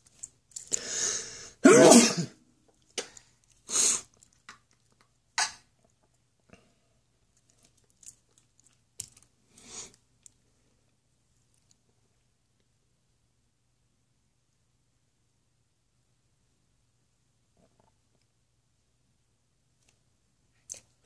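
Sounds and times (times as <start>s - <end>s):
person coughing: 1.6s - 2.4s.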